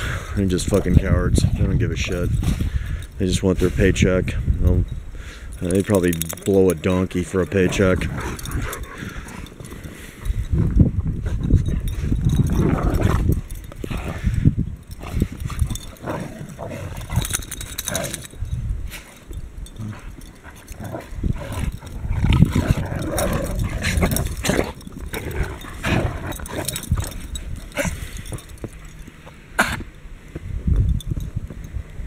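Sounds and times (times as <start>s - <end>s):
dogs growling: 5.5s - 29.8s
dogs barking and yipping: 5.6s - 10.5s, 11.6s - 29.3s.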